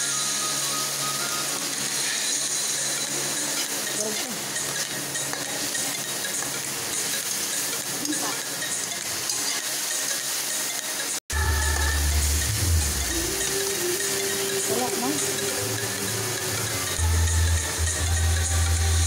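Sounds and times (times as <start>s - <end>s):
vegetables sizzling in hot oil: 0.0s - 19.0s
metal spatula scraping pan: 2.0s - 10.2s.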